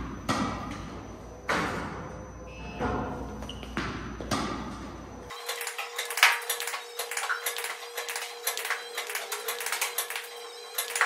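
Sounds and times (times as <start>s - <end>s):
balls bouncing on court: 0.0s - 2.0s, 2.8s - 5.1s
tennis racket hitting balls: 0.0s - 2.0s, 2.8s - 5.0s.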